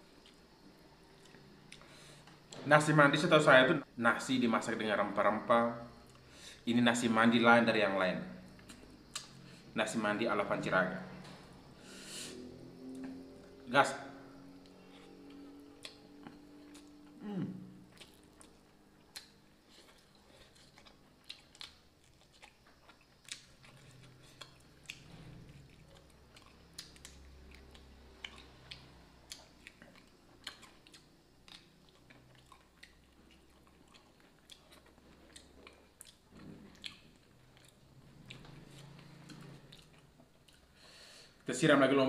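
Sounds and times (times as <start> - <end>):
close-up chewing with mouth clicks: 14.8 - 17.2, 17.8 - 40.9.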